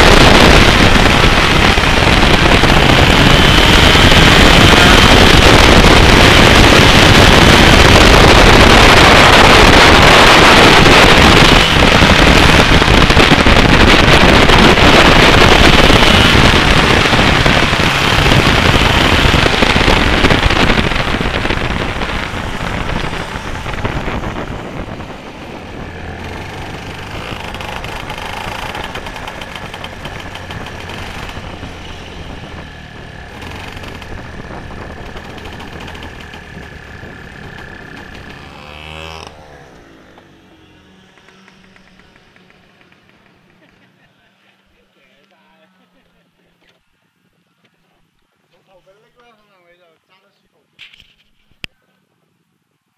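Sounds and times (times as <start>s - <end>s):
wind on microphone: 0.0s - 39.8s
kart engine running: 0.0s - 44.8s.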